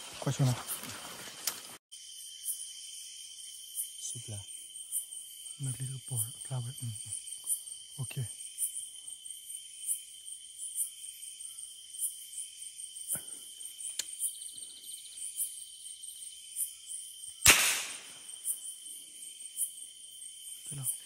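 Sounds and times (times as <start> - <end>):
night insects trilling: 0.0 - 21.0
faint clicks: 13.9 - 14.2
sharp crack with short hiss: 17.4 - 18.2.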